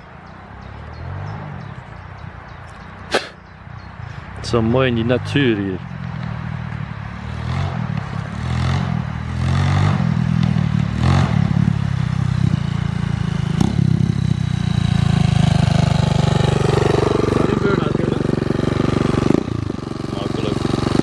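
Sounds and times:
motorbike engine revving: 7.2 - 21.0.

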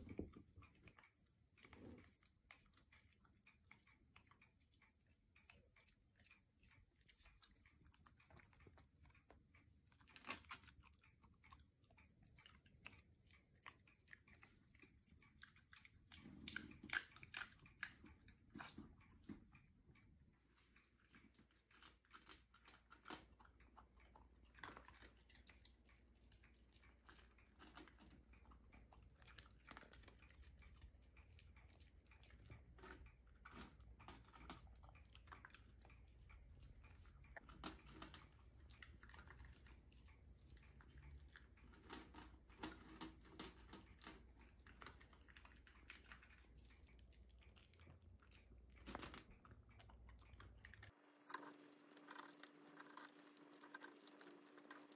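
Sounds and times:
dog crunching dry kibble: 40.8 - 54.9.

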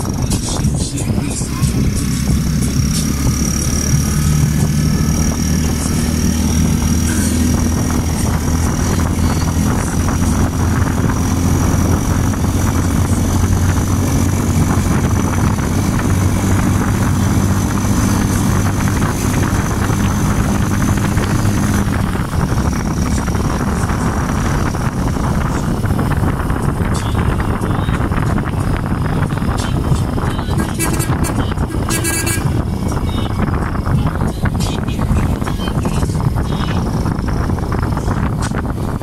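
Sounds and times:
road and wind noise: 0.0 - 39.0
vehicle engine humming: 0.0 - 39.0.

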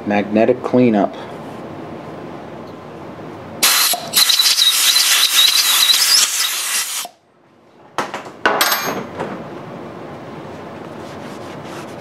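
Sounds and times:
compressed air blow gun blasting: 3.6 - 7.2
thin whistle: 3.6 - 7.2.

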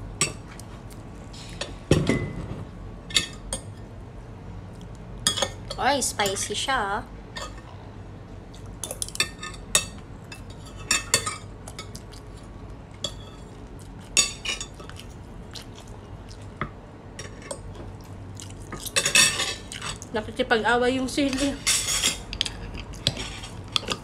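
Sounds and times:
cutlery clinking on dishes: 18.8 - 20.0, 21.3 - 24.0.

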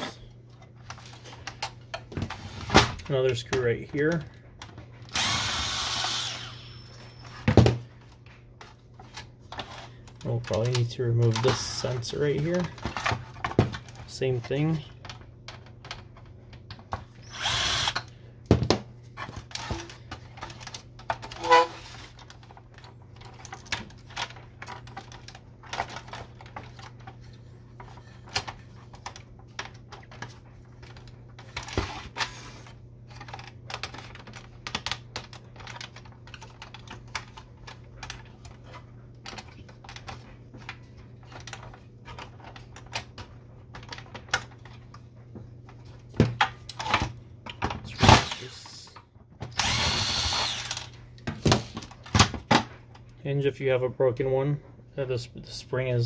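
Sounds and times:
plastic parts clicking and rattling: 0.4 - 5.6, 7.4 - 53.2
cordless drill driving screws: 5.1 - 6.9, 17.2 - 18.0, 48.1 - 48.5, 49.6 - 50.9.

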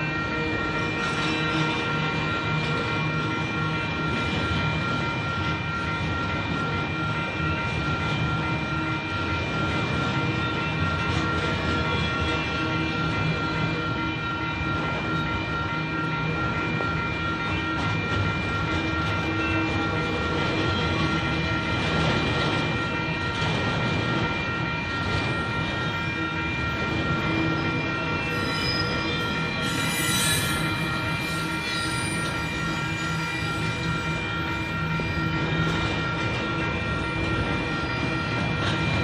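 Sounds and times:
freight train cars rumbling: 0.0 - 39.0
high-pitched wheel squeal: 26.2 - 35.6.

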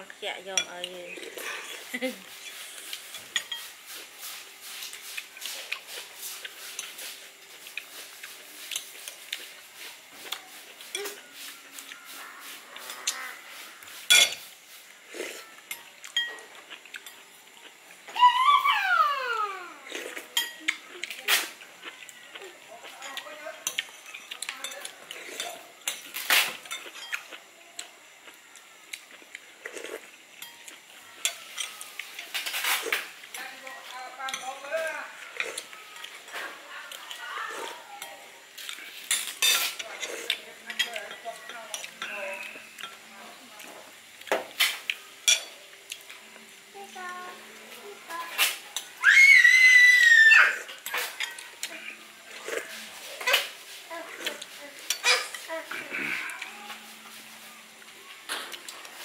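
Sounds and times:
cutlery and dishes clinking: 1.7 - 3.8, 4.7 - 11.5, 14.0 - 14.5, 15.4 - 17.3, 20.0 - 21.6, 22.9 - 27.4, 29.7 - 33.4, 34.2 - 34.8, 37.6 - 46.2, 50.6 - 57.2
cutlery clinking on plates: 14.0 - 14.5, 15.7 - 17.2, 30.4 - 33.1, 38.6 - 43.0, 50.7 - 51.8, 52.5 - 53.6, 54.3 - 55.5.

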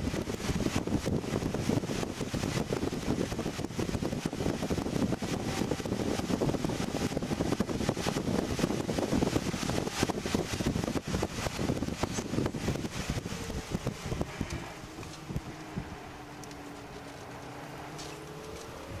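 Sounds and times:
wind and road noise: 0.0 - 19.0
rough car engine accelerating: 0.1 - 19.0.

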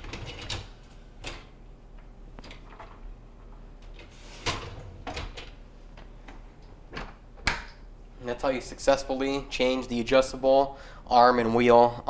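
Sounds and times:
rack wheels rolling: 4.0 - 5.6.

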